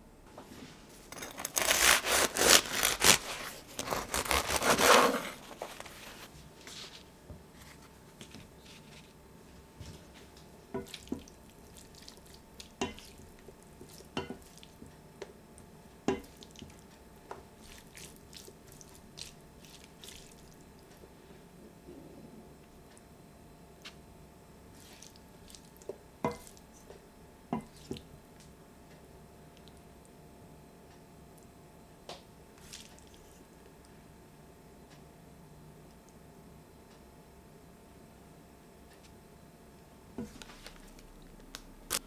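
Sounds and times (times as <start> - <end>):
bread knife sawing crusty roll: 1.4 - 5.6.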